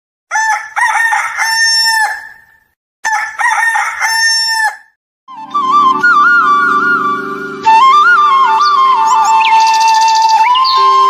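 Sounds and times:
rooster crowing: 0.3 - 4.9
flute music: 5.3 - 11.0.

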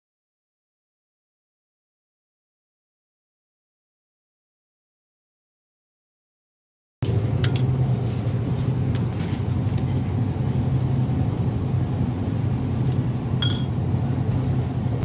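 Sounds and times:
steady low hum: 7.0 - 15.0
glass bottles clinking together: 13.4 - 13.7.

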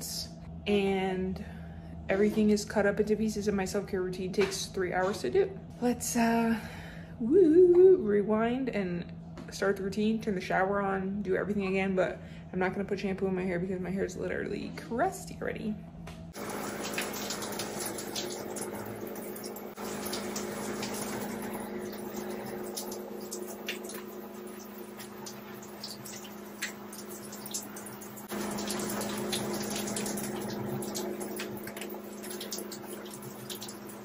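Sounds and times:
low hum: 15.7 - 34.0
shower spray running: 16.4 - 34.0.

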